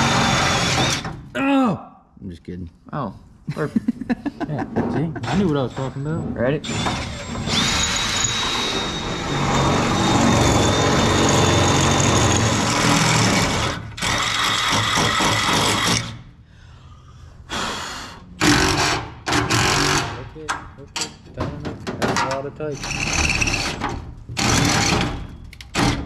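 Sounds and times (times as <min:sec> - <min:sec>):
cordless drill running under load: 0:00.0 - 0:01.1, 0:06.7 - 0:16.1.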